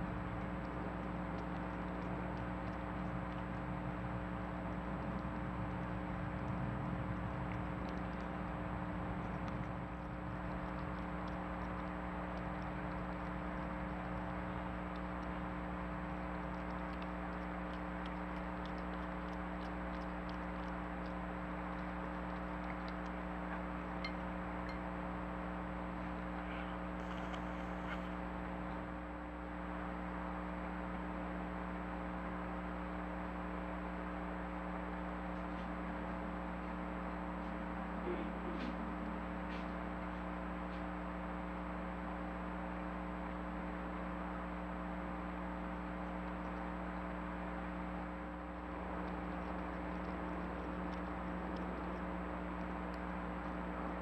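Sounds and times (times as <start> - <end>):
electronic hum and hiss: 0.0 - 54.0
faint clicks: 0.2 - 24.8.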